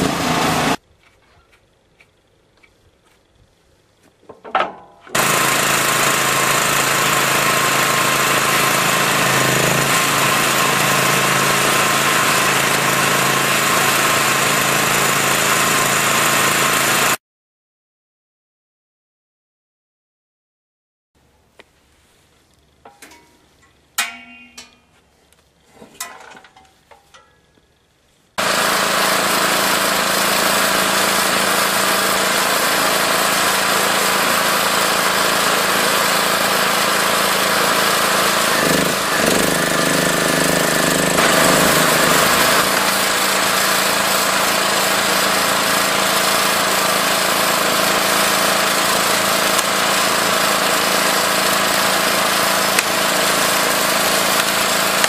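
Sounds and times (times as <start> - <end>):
log splitter motor humming: 0.0 - 0.8, 4.7 - 17.2, 28.4 - 55.0.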